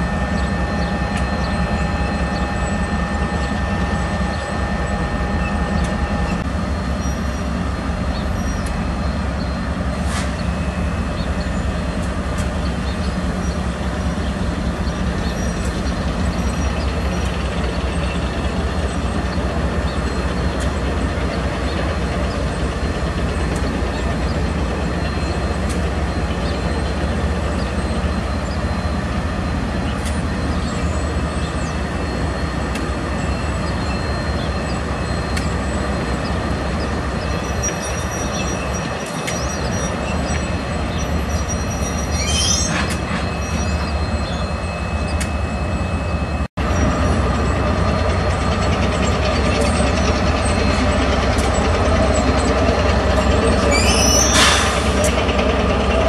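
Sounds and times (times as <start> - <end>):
locomotive engine rumble: 0.0 - 56.0
thin wheel squeal: 37.2 - 47.0, 48.8 - 56.0.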